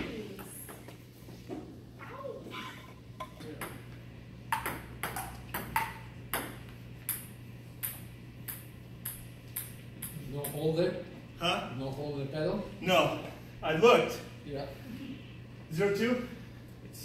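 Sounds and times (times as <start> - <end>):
table tennis ball clicking: 7.1 - 10.6.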